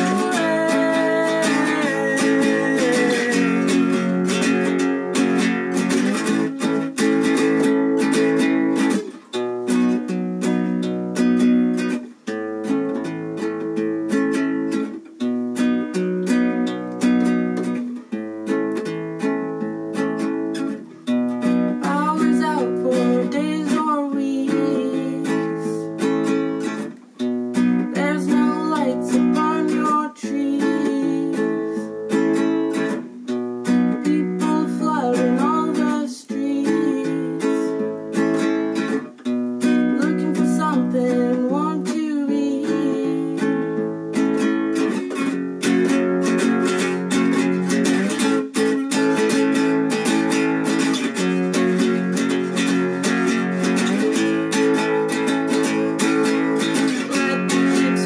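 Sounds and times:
person singing: 0.0s - 9.1s, 21.4s - 26.8s, 27.7s - 33.0s, 33.6s - 39.0s, 39.6s - 58.0s
classical guitar playing: 0.0s - 58.0s.

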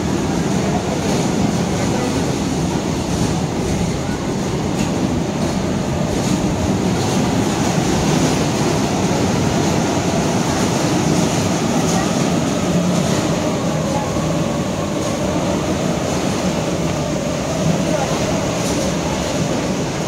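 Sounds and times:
wheels rumbling on steel rails: 0.0s - 20.0s.

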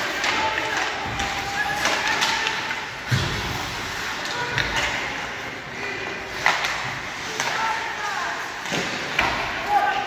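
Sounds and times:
hockey stick and puck clacks: 0.0s - 10.0s
puck thud against boards: 0.1s - 3.8s, 6.3s - 7.7s, 8.6s - 9.6s.

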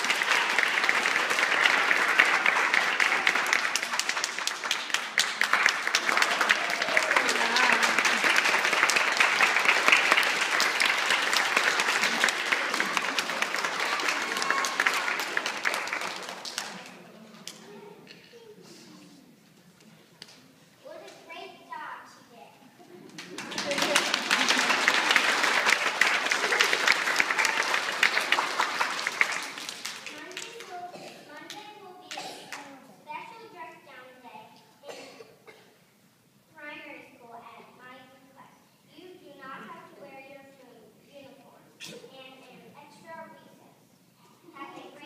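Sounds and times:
crowd of children applauding: 0.0s - 17.6s, 23.2s - 32.7s
audience clapping: 0.0s - 17.7s, 23.0s - 32.7s.

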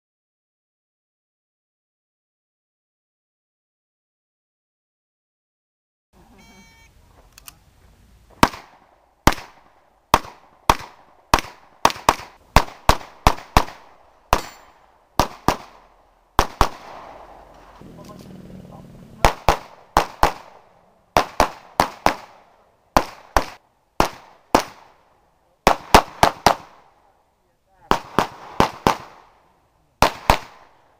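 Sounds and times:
rapid pistol shots: 8.4s - 18.2s, 19.2s - 25.0s, 25.6s - 27.0s, 27.9s - 29.4s, 30.0s - 30.9s.

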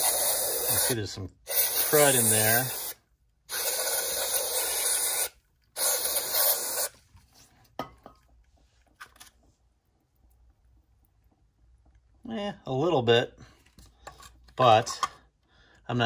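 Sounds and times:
aerosol can spraying: 0.0s - 7.0s.

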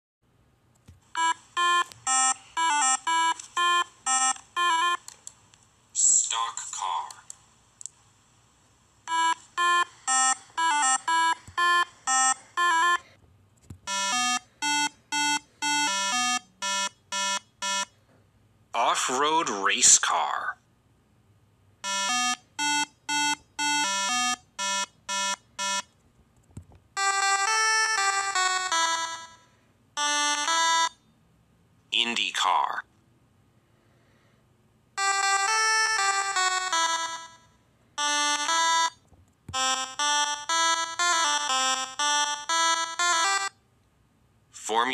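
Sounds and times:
electronic beeping tune: 1.2s - 5.0s, 9.1s - 13.0s, 13.9s - 17.9s, 21.8s - 25.9s.

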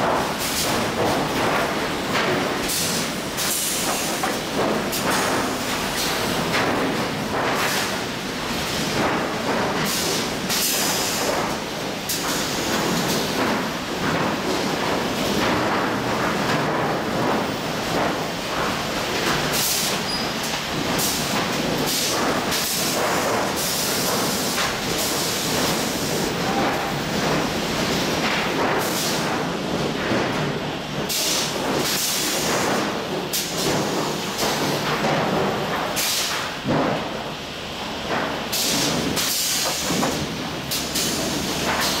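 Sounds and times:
boards clattering onto stack: 8.8s - 37.2s.

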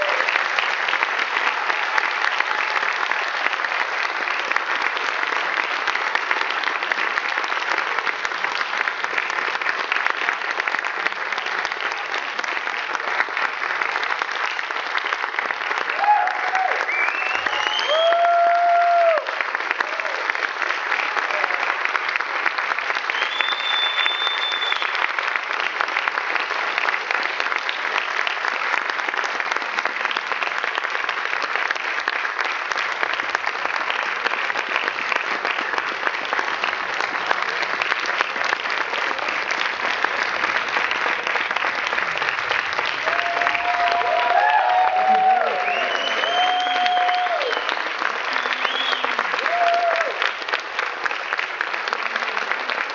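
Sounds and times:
audience applauding: 0.0s - 52.9s
high whistle: 16.9s - 18.2s, 23.1s - 25.0s, 45.6s - 47.8s, 48.4s - 49.2s.

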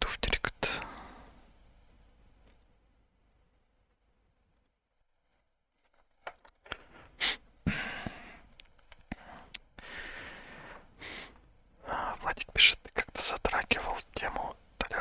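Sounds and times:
headset handling clicks and rustles: 5.8s - 6.8s.

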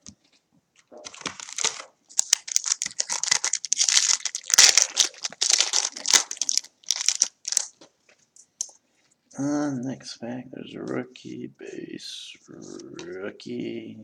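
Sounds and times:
foil wrapper crinkling: 1.0s - 7.9s.

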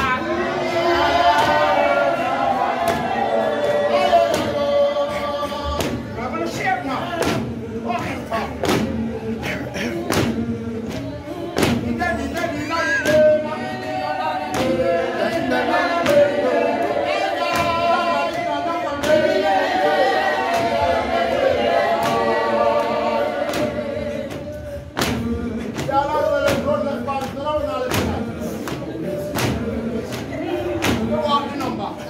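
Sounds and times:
congregation singing unaccompanied: 0.0s - 32.0s
sharp knock marking beat: 1.2s - 4.8s, 5.4s - 9.0s, 10.0s - 31.2s.

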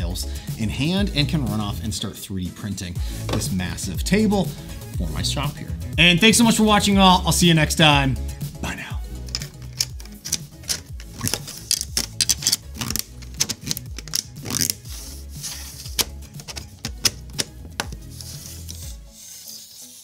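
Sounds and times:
background music: 0.0s - 20.0s
hard plastic clicks: 16.0s - 18.0s.

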